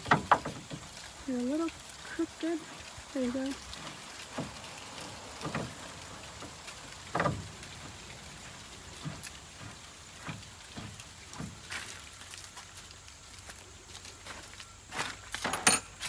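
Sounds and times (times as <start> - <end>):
metal knocking and clunking: 0.0 - 0.9, 5.4 - 8.0.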